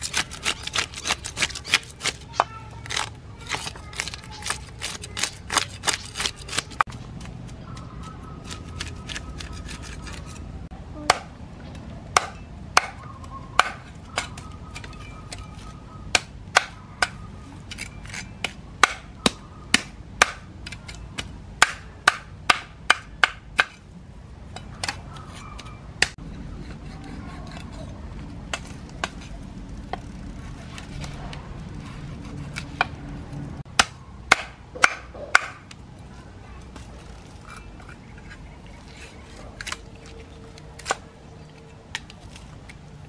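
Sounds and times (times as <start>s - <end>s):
cleaver scraping fish scales: 0.0s - 7.0s, 7.6s - 10.6s, 24.9s - 28.0s, 36.7s - 42.6s.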